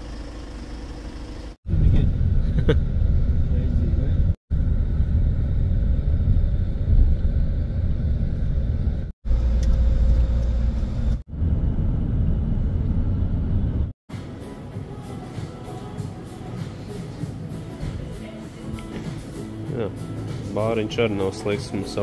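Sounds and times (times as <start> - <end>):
low vehicle rumble: 0.0 - 14.0.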